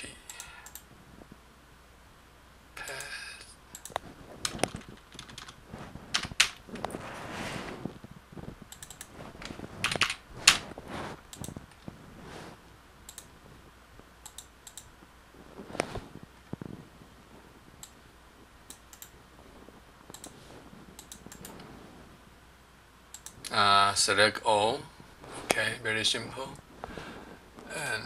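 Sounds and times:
keyboard typing: 0:03.7 - 0:07.0, 0:08.7 - 0:10.6, 0:11.3 - 0:11.9, 0:13.1 - 0:13.3, 0:14.2 - 0:14.9, 0:18.7 - 0:19.1, 0:20.1 - 0:20.4, 0:21.0 - 0:21.6, 0:23.1 - 0:23.4
mouse clicks: 0:08.7 - 0:09.1, 0:13.1 - 0:13.3, 0:14.2 - 0:14.9, 0:20.1 - 0:20.4, 0:21.0 - 0:21.6.

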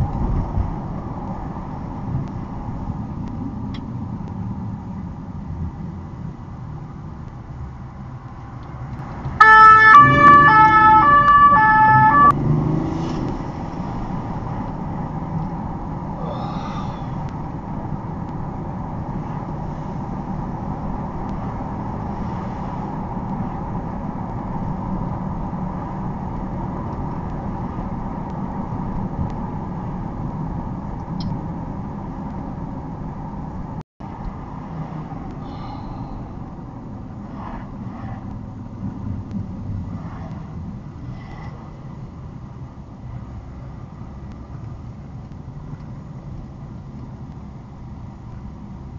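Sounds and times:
car engine and road noise: 0:00.0 - 0:48.9
police siren: 0:09.4 - 0:12.4.

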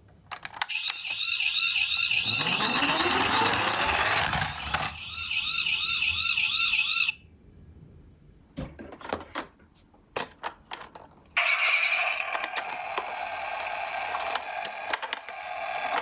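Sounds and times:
toy ambulance siren warbling: 0:00.6 - 0:07.2, 0:11.4 - 0:16.0.

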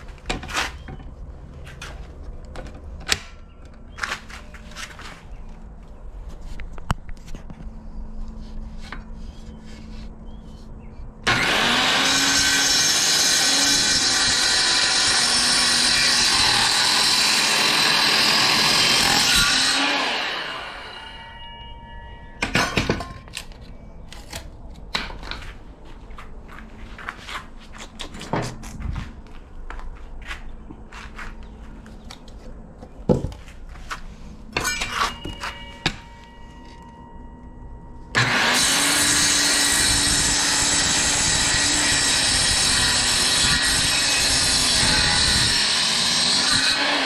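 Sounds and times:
power saw cutting wood: 0:11.2 - 0:21.6, 0:38.2 - 0:47.0
knocks of wood being handled: 0:27.3 - 0:34.0.

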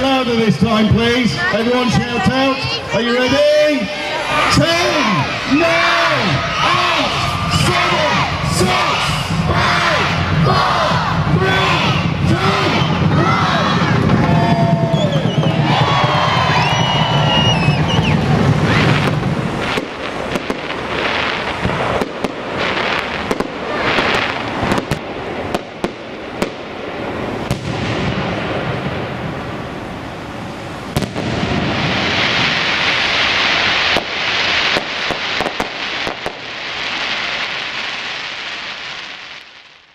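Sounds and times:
dense firework crackling: 0:00.0 - 0:39.9
firework shells bursting: 0:14.0 - 0:26.7, 0:30.9 - 0:39.8.

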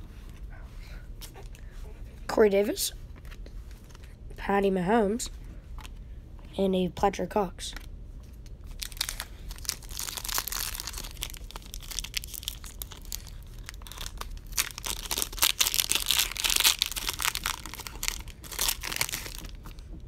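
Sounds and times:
plastic wrappers tearing and crinkling: 0:08.6 - 0:19.9.

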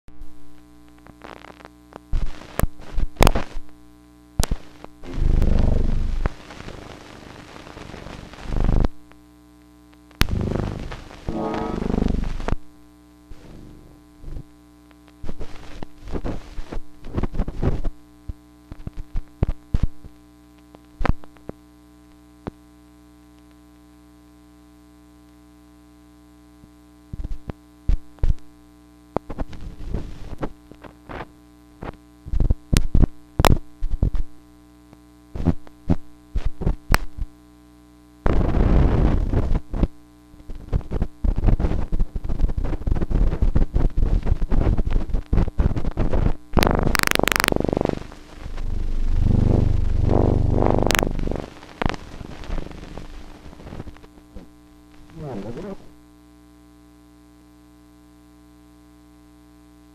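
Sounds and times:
steady buzzing hum: 0:00.1 - 0:59.9
clicks pops and crackles: 0:00.6 - 0:03.7, 0:04.4 - 0:05.0, 0:18.3 - 0:21.6, 0:30.3 - 0:33.6, 0:36.9 - 0:37.1, 0:46.6 - 0:48.6, 0:50.8 - 0:55.2.

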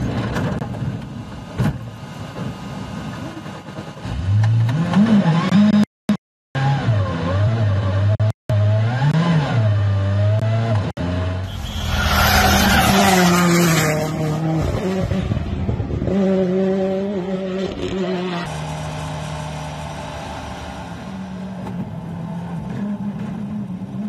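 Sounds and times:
rally car engines racing: 0:06.6 - 0:24.0
tyres skidding: 0:11.4 - 0:14.8.

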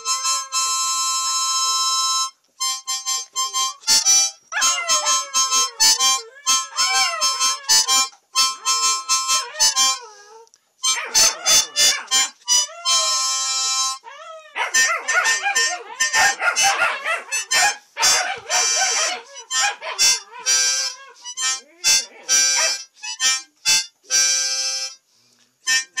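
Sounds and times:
harmonica chords: 0:00.0 - 0:26.0
puppies howling: 0:04.6 - 0:10.2, 0:10.8 - 0:13.4, 0:14.0 - 0:21.3.

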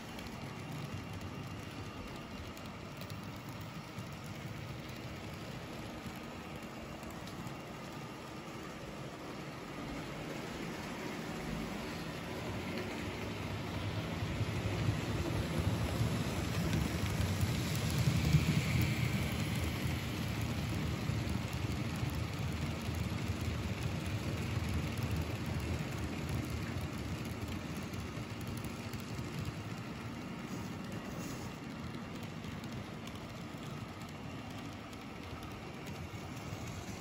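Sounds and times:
model train wheels rattling: 0:00.0 - 0:37.0.

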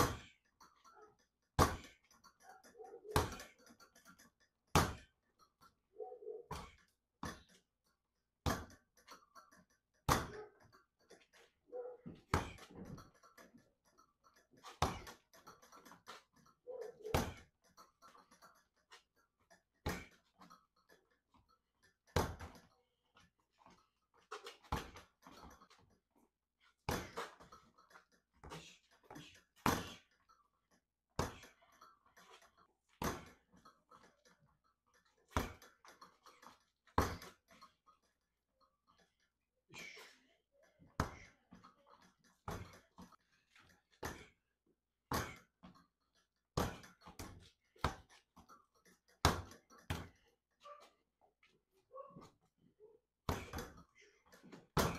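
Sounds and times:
punches hitting reflex ball: 0:00.0 - 0:00.3, 0:01.6 - 0:02.0, 0:03.2 - 0:03.6, 0:04.7 - 0:05.1, 0:08.4 - 0:08.8, 0:10.1 - 0:10.4, 0:12.2 - 0:12.8, 0:14.7 - 0:15.2, 0:17.1 - 0:17.5, 0:19.8 - 0:20.1, 0:22.2 - 0:22.6, 0:26.9 - 0:27.4, 0:29.6 - 0:30.0, 0:31.2 - 0:31.4, 0:33.0 - 0:33.4, 0:35.3 - 0:35.6, 0:37.0 - 0:37.3, 0:41.0 - 0:41.2, 0:45.1 - 0:45.5, 0:46.6 - 0:48.1, 0:49.2 - 0:50.1, 0:53.3 - 0:53.8.

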